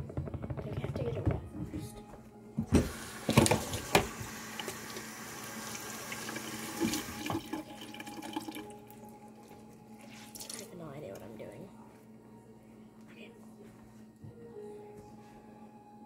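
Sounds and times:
kitchen faucet running: 2.8 - 8.8.

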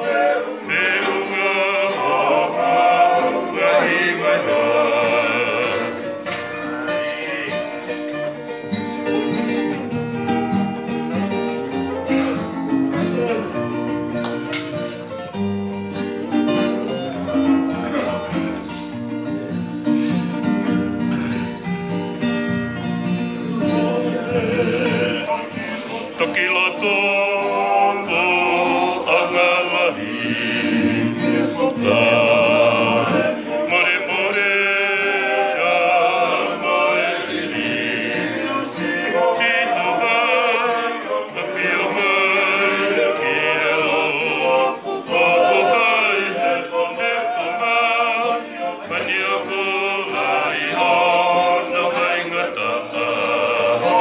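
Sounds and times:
men singing: 0.0 - 8.5, 23.4 - 54.0
guitars and ukulele strummed: 0.0 - 54.0.

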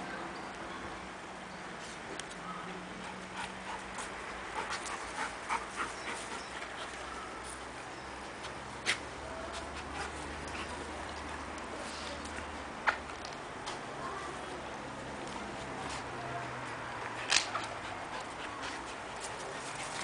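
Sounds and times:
dogs clicking and snuffling: 3.0 - 7.6, 8.4 - 13.8, 17.0 - 20.0.

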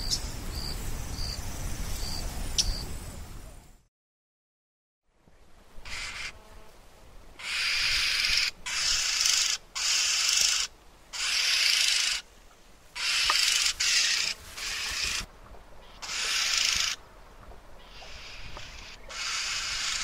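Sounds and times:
bird harsh hissing calls: 5.8 - 6.5, 7.4 - 12.3, 13.0 - 17.0, 17.8 - 20.0.

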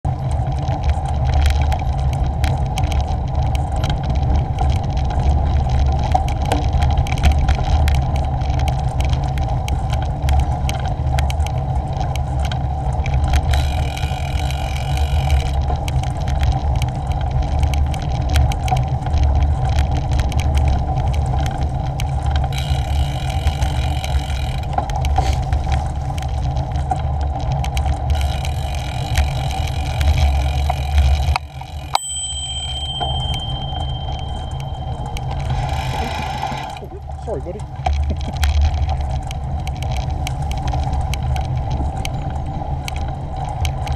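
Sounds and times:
bicycle tyres on tarmac: 0.0 - 43.9
small rattles and clicks: 0.1 - 43.9
high buzz: 31.6 - 36.9.

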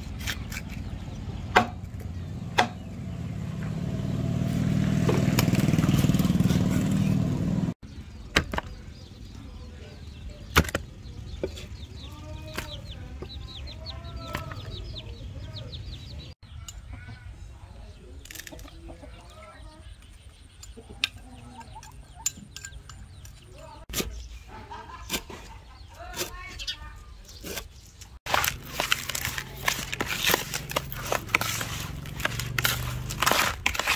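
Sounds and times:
cleaver chopping on wooden board: 1.5 - 1.9, 2.5 - 2.9
sharp knocks: 2.5 - 2.9
chickens clucking: 7.9 - 26.8.

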